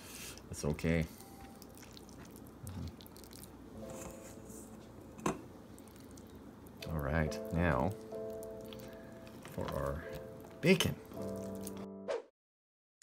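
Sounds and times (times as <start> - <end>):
wet squishing of meat stuffing: 1.5 - 3.7, 5.7 - 11.7.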